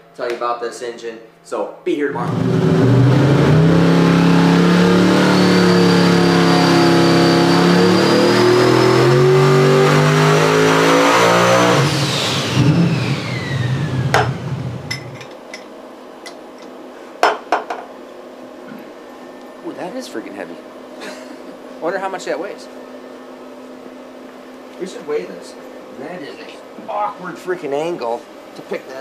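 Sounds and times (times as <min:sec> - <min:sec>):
high turbo whine: 0:02.0 - 0:15.2
engine running hard on a dyno: 0:02.1 - 0:14.9.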